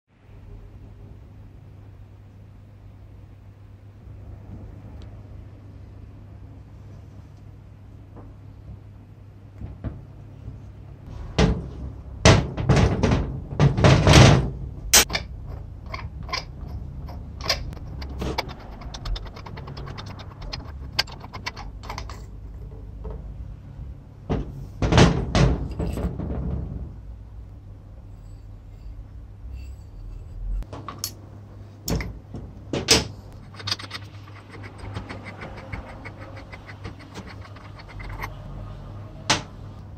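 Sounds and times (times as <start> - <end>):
quick clicks and scrapes: 17.1 - 22.3, 33.3 - 38.5.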